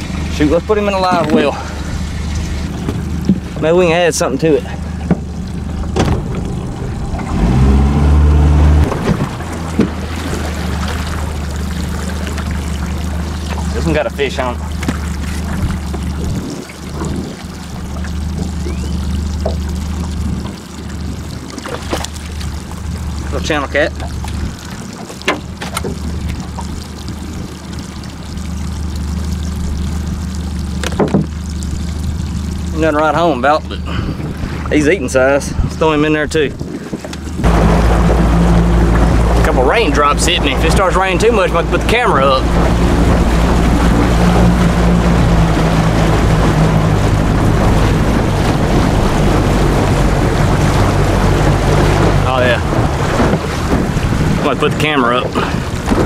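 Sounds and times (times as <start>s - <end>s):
outboard motor running: 0.0s - 56.0s
water pouring and trickling: 0.0s - 56.0s.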